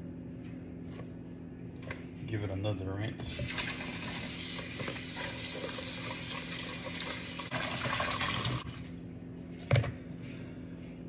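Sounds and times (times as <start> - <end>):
faucet water splashing: 3.3 - 8.8.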